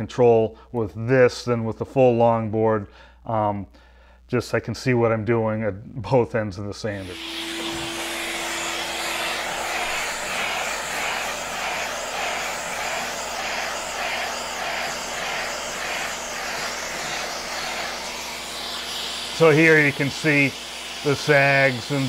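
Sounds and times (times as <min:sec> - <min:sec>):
hand sanding strokes: 0:07.0 - 0:22.0
vacuum droning: 0:07.0 - 0:22.0.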